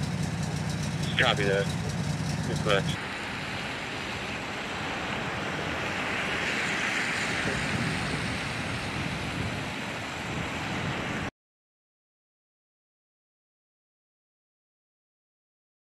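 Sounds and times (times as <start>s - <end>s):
low street rumble: 0.0s - 11.2s
tyre hiss on wet pavement: 4.8s - 10.0s.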